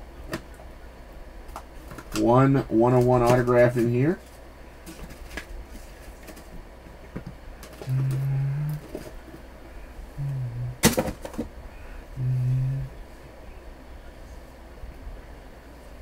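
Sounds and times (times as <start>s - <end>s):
man humming low notes: 7.8s - 10.8s, 11.7s - 13.5s.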